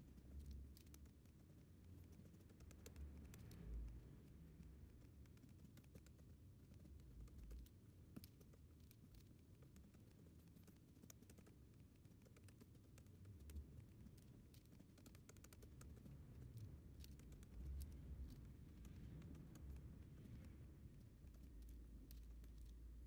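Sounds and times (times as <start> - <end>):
low hum: 15.8 - 23.0.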